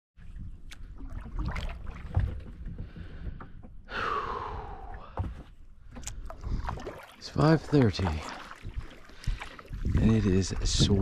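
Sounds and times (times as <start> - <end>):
water splashing: 0.2 - 3.6, 4.3 - 11.0
paddle knocks: 1.0 - 4.0, 5.0 - 11.0
long exhale: 3.9 - 5.2.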